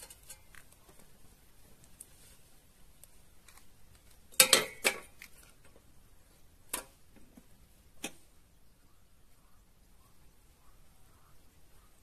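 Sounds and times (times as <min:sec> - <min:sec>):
metal cookware clanking: 0:04.4 - 0:05.2.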